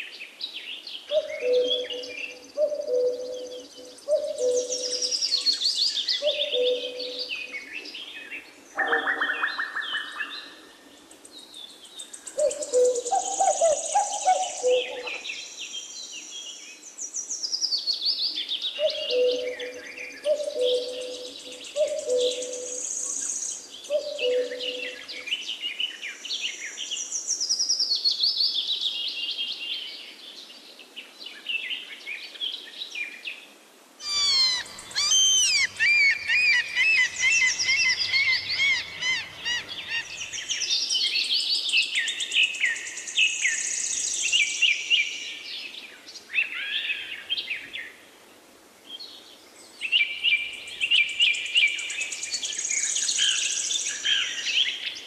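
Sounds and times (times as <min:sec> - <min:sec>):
birds singing: 0:00.0 - 0:30.1, 0:34.0 - 0:48.0.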